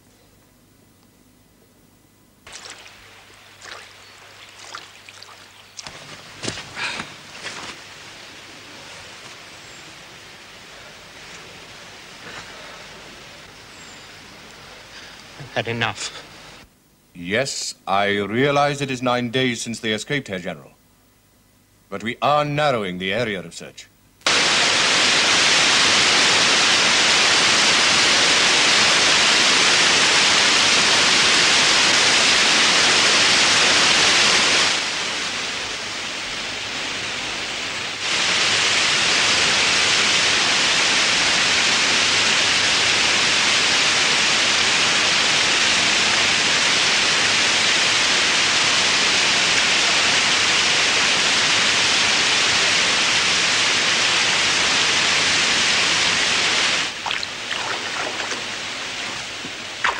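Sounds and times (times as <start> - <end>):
water rushing over a weir: 2.4 - 6.0, 38.0 - 59.9.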